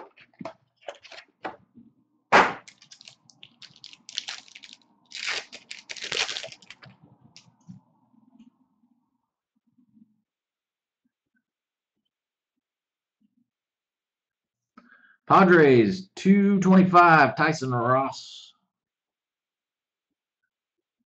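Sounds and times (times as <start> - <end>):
foil wrapper tearing and crinkling: 2.6 - 6.9.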